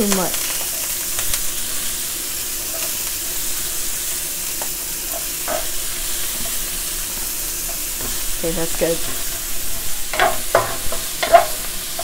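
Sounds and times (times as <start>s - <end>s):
onions sizzling in a wok: 0.0s - 12.0s
wooden spatula knocking on pan: 8.0s - 9.5s, 10.1s - 12.0s.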